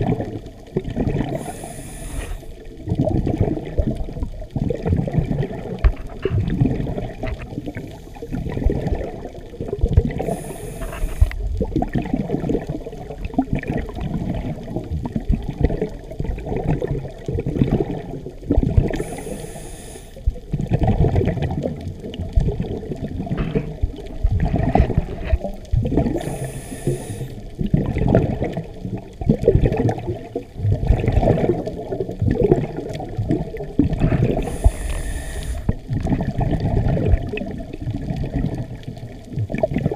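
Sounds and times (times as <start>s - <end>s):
exhaled bubbles gurgling: 0.0s - 39.9s
regulator inhalation hiss: 1.4s - 2.6s, 7.8s - 8.4s, 10.2s - 11.4s, 19.0s - 20.2s, 26.1s - 27.4s, 34.4s - 35.8s.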